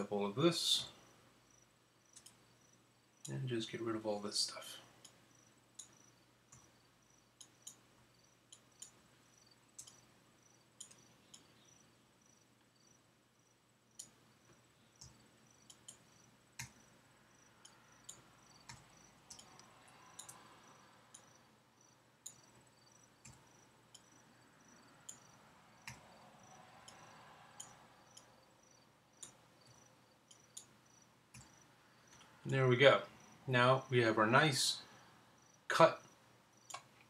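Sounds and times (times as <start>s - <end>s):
mouse and keyboard clicks: 9.8s - 10.0s, 10.8s - 11.5s, 17.6s - 20.4s, 36.6s - 37.0s.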